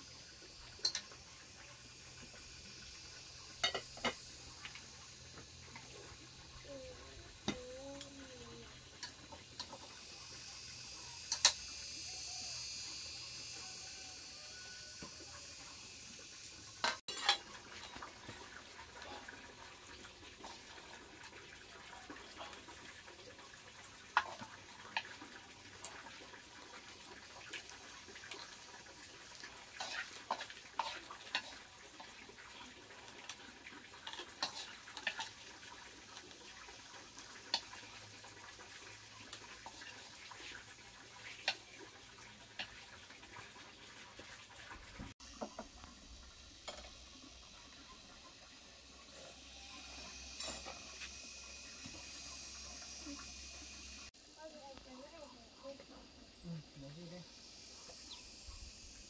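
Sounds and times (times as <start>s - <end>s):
water running: 0.0s - 59.0s
dishes and pots clinking: 0.8s - 1.1s, 3.5s - 4.2s, 16.8s - 18.0s, 46.6s - 46.9s.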